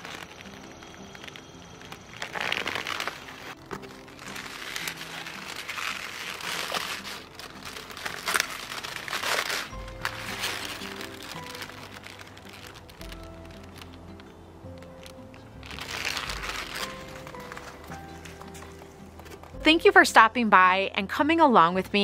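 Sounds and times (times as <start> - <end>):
cabbage leaves rustling: 0.0 - 19.5
soft background music: 0.0 - 22.0
scissors cutting leaves: 4.3 - 15.2.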